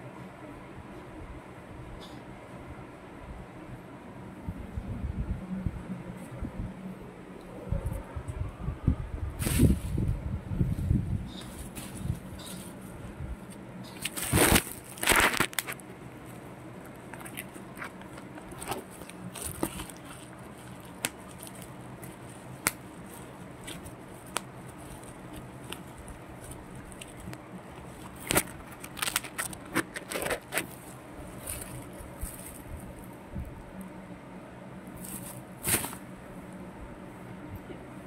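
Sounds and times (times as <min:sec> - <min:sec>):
bubble wrap and cardboard crinkling: 0:11.3 - 0:33.1, 0:35.0 - 0:36.1.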